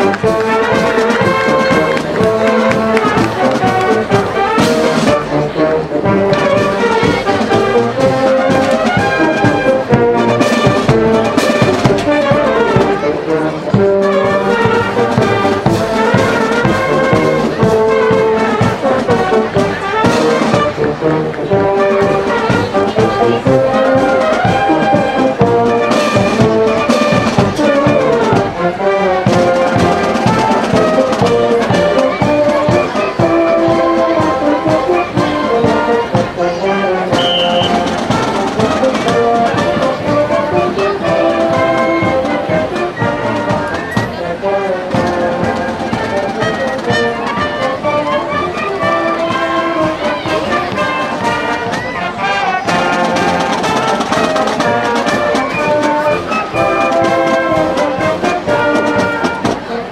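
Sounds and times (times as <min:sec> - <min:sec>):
brass melody: 0:00.0 - 0:59.9
steady drum beat: 0:00.0 - 0:59.9.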